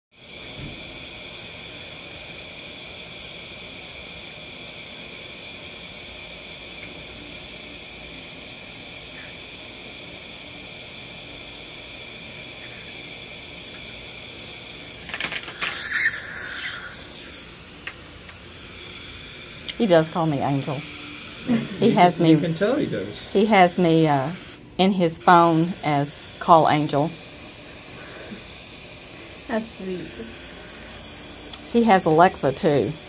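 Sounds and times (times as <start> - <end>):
dental suction whistling: 0.2 - 33.0
suction rough hissing: 0.2 - 33.0.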